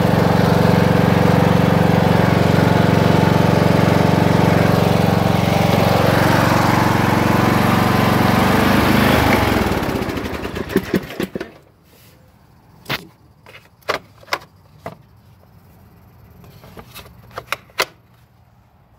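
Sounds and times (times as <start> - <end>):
lawn mower engine running: 0.0 - 11.7.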